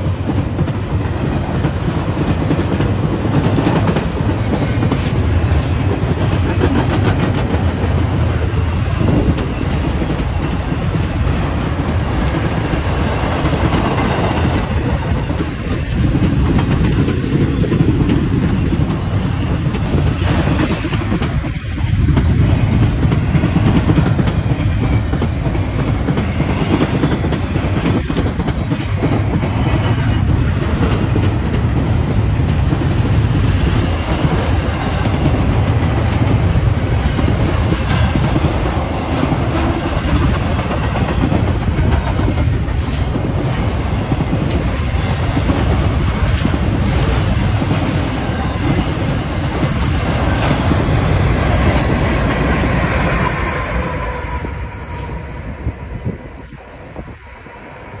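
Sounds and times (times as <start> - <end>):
freight train wheels clacking on rails: 0.0 - 58.0.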